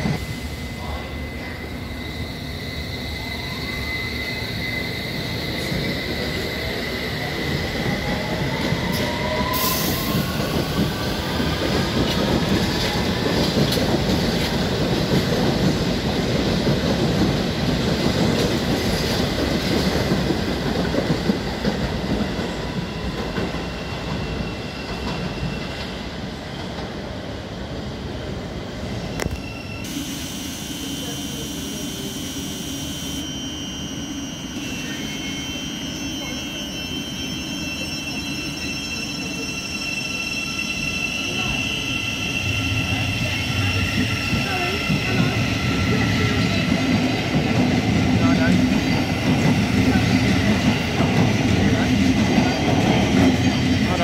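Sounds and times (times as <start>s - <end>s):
train wheels rumbling and clattering: 3.9s - 29.4s, 41.4s - 54.0s.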